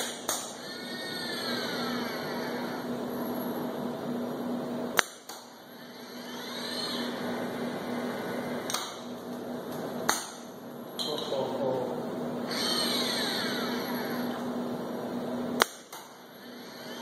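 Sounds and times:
robot arm servo motors humming: 0.0 - 4.6, 5.6 - 9.7, 12.4 - 15.3, 16.1 - 17.0
robot arm whine: 0.4 - 3.9, 5.6 - 9.1, 12.4 - 14.8, 16.2 - 17.0.

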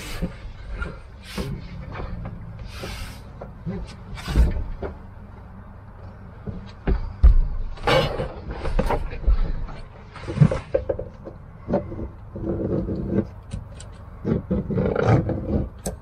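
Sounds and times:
hissy rustle: 2.6 - 3.4.

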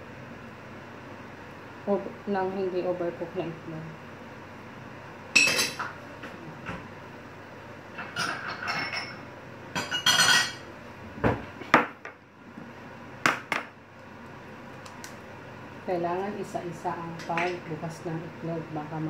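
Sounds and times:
dishes knocking and clinking: 5.4 - 6.0, 8.0 - 9.2, 9.8 - 10.6.

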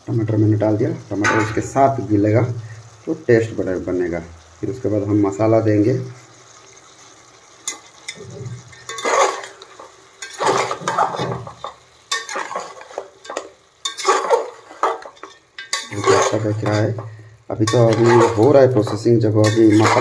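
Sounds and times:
faint sizzle of frying: 0.0 - 20.0
metal spatula scraping pot: 7.6 - 20.0.

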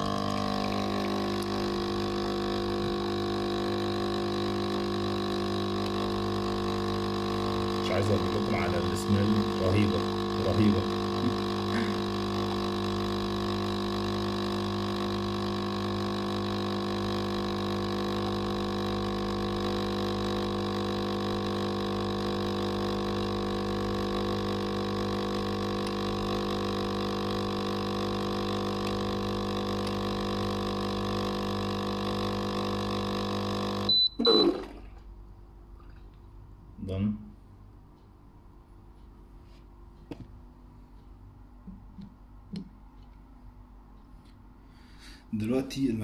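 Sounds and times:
coffee machine pump humming: 0.0 - 36.2.

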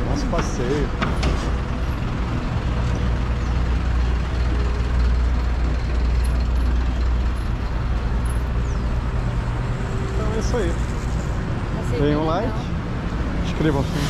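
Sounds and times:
traffic engine rumble: 0.0 - 14.0.

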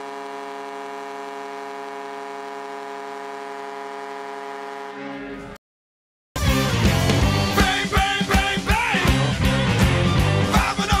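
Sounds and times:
arena goal horn blast: 0.0 - 5.6.

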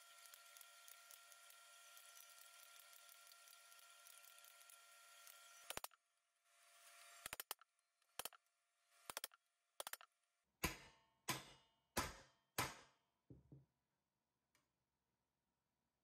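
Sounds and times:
hammer striking metal tool: 10.6 - 13.0.

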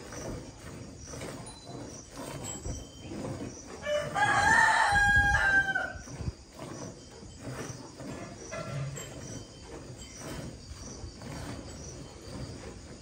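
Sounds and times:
rooster crowing: 3.8 - 6.1.

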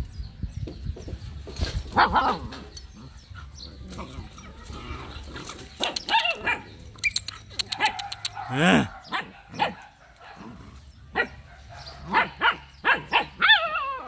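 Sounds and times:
puppies play-fighting: 2.0 - 8.9
puppies barking and yapping: 2.0 - 14.0.

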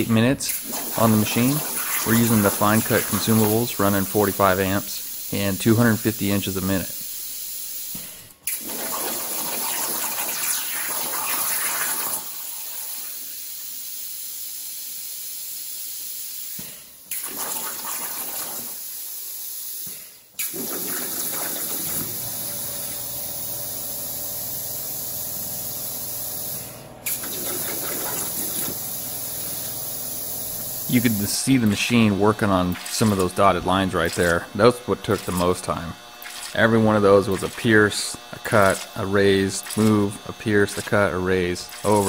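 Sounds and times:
plasma torch hissing: 0.5 - 5.6, 6.7 - 32.2.

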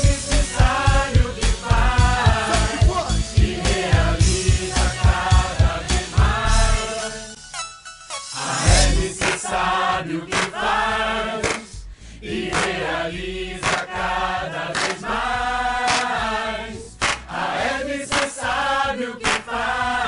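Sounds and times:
sharp beat: 0.0 - 6.5, 8.4 - 9.4
group of voices singing: 0.0 - 7.4, 8.3 - 20.0.

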